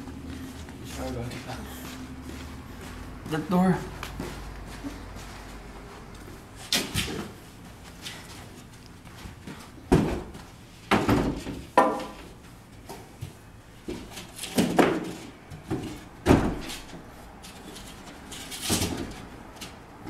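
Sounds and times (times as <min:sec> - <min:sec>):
board thumping against glass door: 0:09.9 - 0:12.2, 0:15.8 - 0:16.7.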